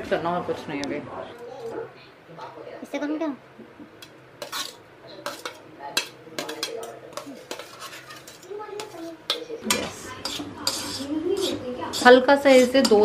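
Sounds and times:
metal spoon scraping a pan: 4.0 - 13.0.

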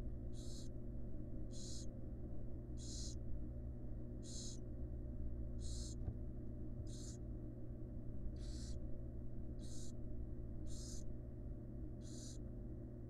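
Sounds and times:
steady low hum: 0.0 - 13.0
owl nestlings hissing: 0.4 - 0.7, 1.5 - 1.9, 2.8 - 3.2, 4.2 - 4.6, 5.6 - 6.0, 6.9 - 7.2, 8.4 - 8.8, 9.6 - 10.0, 10.7 - 11.1, 12.0 - 12.4.

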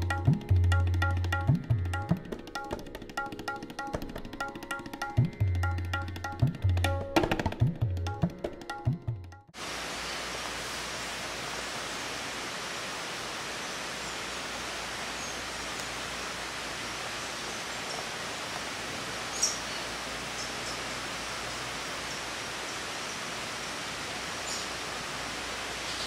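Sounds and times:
rushing hiss of outdoor ambience: 0.0 - 8.9, 9.5 - 26.0.

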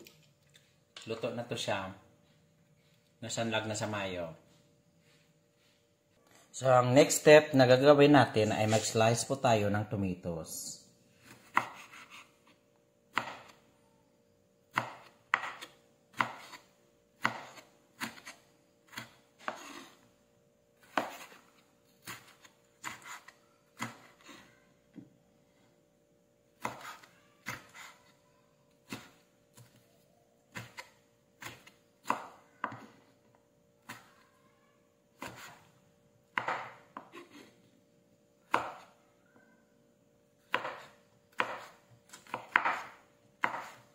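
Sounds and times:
knife chopping on wooden board: 11.2 - 12.3, 13.1 - 13.6, 14.7 - 20.0, 20.8 - 24.5, 26.6 - 28.1, 28.9 - 29.8, 30.5 - 33.0, 35.2 - 35.6, 36.3 - 37.5, 38.5 - 39.0, 40.5 - 43.9.

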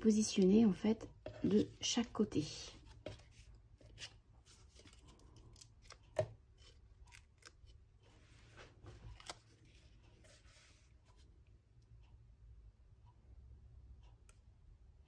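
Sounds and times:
paper rustling: 8.2 - 10.8.

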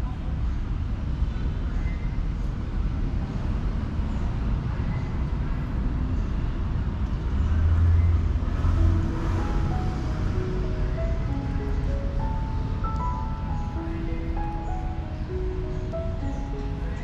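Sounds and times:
outdoor background rumble: 0.0 - 17.0.

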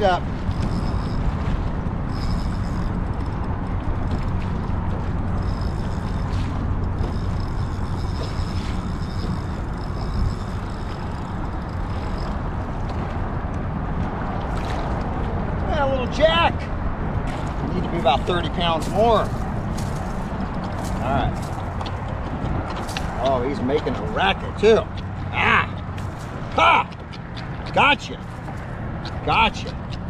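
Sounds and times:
traffic rumble on bridge: 0.0 - 30.0.

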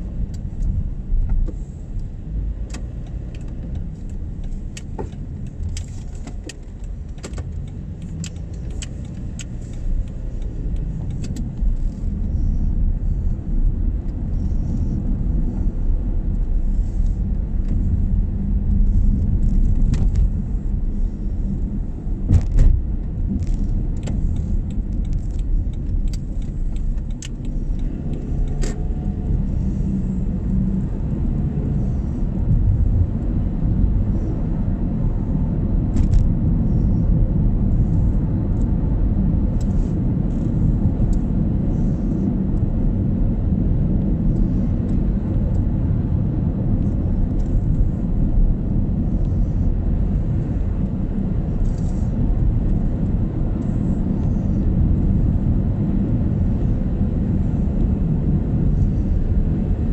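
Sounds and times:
car road and engine noise: 0.0 - 59.9
light clicks and rattles: 22.3 - 29.3.

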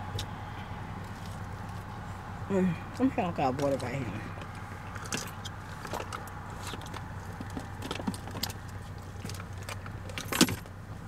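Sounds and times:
low car hum: 0.0 - 11.0.

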